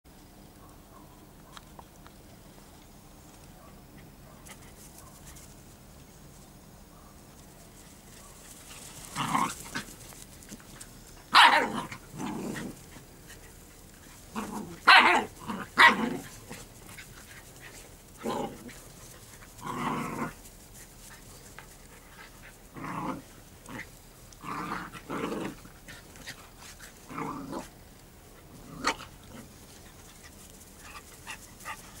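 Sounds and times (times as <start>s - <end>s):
puppies barking and growling: 11.2s - 20.5s, 21.9s - 32.0s.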